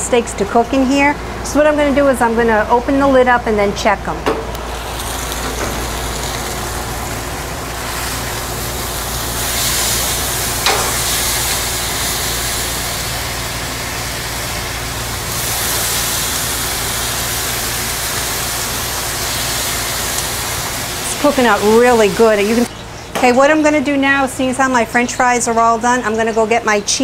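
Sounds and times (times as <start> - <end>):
exhaust fan humming: 0.0 - 27.0
steaks sizzling on grill: 4.6 - 22.7.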